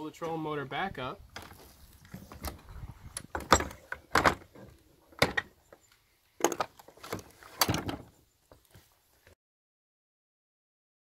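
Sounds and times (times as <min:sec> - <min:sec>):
trolling motor clunks and knocks: 0:01.4 - 0:05.5, 0:06.4 - 0:08.1.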